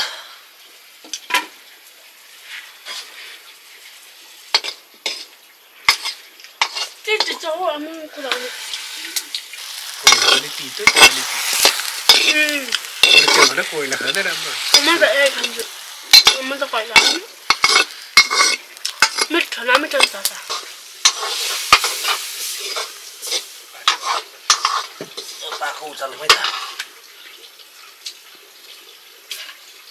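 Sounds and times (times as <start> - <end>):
food sizzling: 0.0 - 29.9
utensil scraping pan: 4.5 - 7.5, 8.2 - 26.8.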